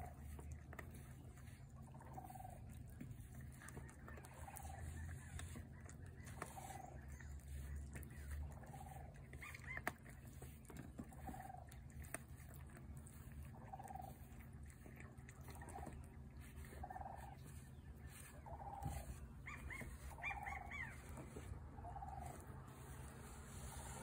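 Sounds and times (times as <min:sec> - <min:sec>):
faint dog barking: 0:02.0 - 0:10.6, 0:18.4 - 0:23.1
bird chirps: 0:16.8 - 0:21.1.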